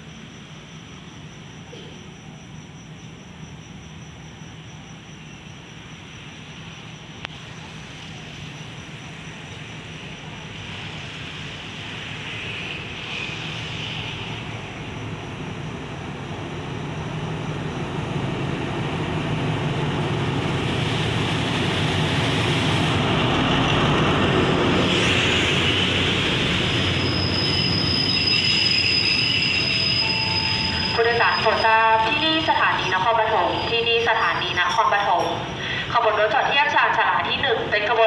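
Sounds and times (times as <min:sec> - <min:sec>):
diesel locomotive engine hum: 0:00.0 - 0:38.0
train rumbling past: 0:00.0 - 0:38.0
high brake squeal: 0:12.1 - 0:14.6, 0:24.8 - 0:32.5, 0:33.3 - 0:34.0.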